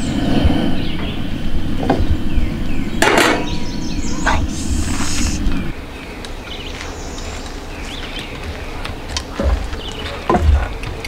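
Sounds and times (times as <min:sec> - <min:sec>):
birds chirping: 0:00.0 - 0:11.0
frying pan clanking on metal grate: 0:03.0 - 0:03.5.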